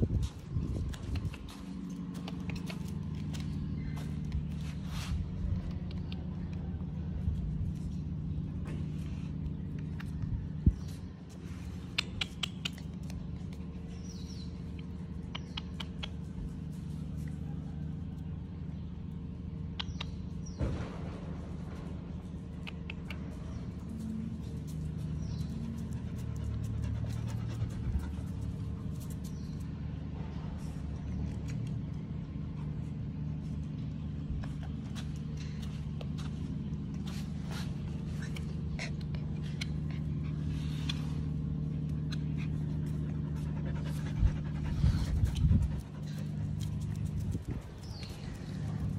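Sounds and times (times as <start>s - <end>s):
low hum: 0.0s - 48.9s
claws clicking on tile floor: 0.8s - 4.5s.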